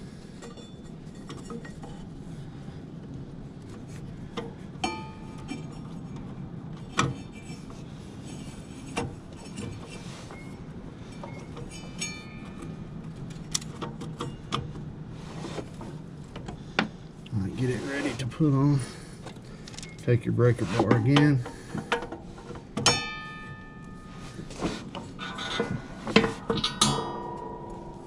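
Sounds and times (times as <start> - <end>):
steady low hum: 0.0 - 28.0
knocks and metallic clinks: 8.9 - 14.8, 20.9 - 24.2, 24.9 - 28.0.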